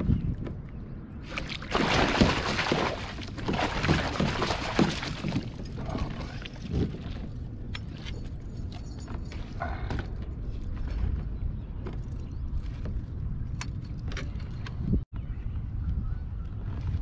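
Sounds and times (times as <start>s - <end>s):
fish splashing water: 1.2s - 7.3s
water sloshing: 1.2s - 9.5s.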